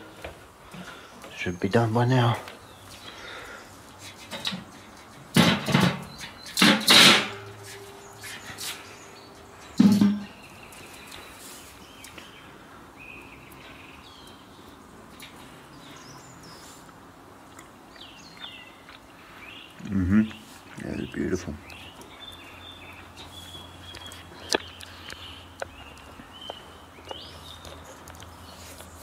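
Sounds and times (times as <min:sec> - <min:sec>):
metal lid clanking and scraping: 0:05.3 - 0:07.8, 0:09.7 - 0:10.4.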